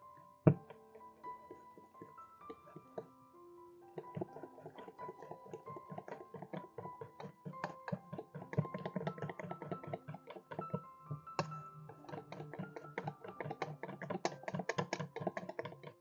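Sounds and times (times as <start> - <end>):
piano music: 0.0 - 16.0
whisk clicking against metal bowl: 3.9 - 16.0.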